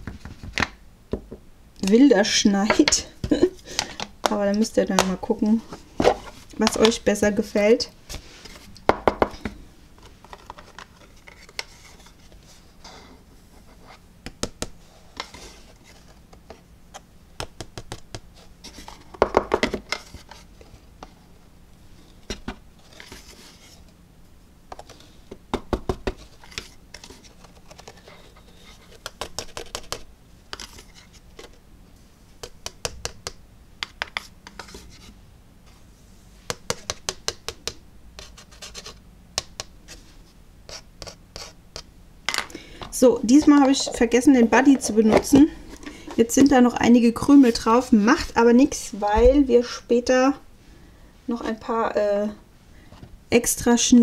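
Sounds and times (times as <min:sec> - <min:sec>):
plastic spoon scraping in tub: 0:43.3 - 0:46.5.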